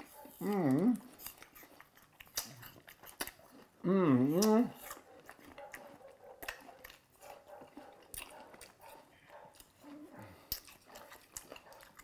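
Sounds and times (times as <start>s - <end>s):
person chewing: 0.0s - 12.0s.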